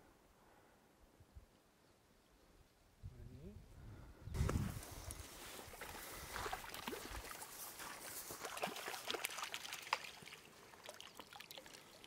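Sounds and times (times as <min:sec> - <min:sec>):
fish splashing in water: 0:05.5 - 0:12.0.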